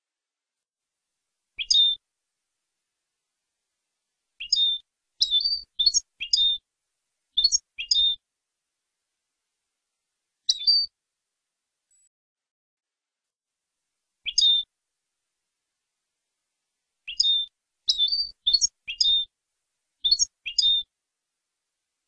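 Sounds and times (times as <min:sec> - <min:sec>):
goldfinch twittering song: 0:01.6 - 0:02.0, 0:04.4 - 0:06.6, 0:07.4 - 0:08.2, 0:10.5 - 0:10.9, 0:14.3 - 0:14.7, 0:17.1 - 0:19.3, 0:20.0 - 0:20.9.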